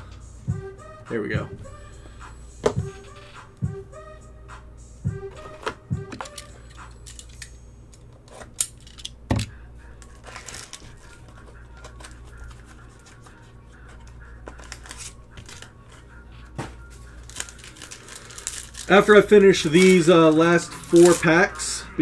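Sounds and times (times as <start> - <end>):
cardboard and foil rustling: 10.1 - 15.7, 16.7 - 21.7.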